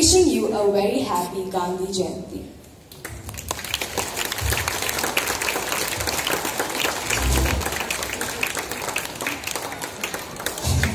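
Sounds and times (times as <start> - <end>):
audience applauding: 3.1 - 10.9
low bumps: 7.0 - 7.8.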